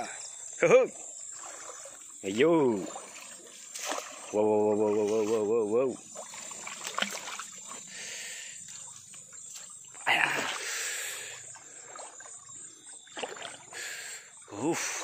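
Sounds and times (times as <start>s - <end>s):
water splashing from wading: 0.8s - 15.0s
net splashing into water: 2.8s - 7.8s, 9.9s - 10.8s, 13.0s - 13.7s.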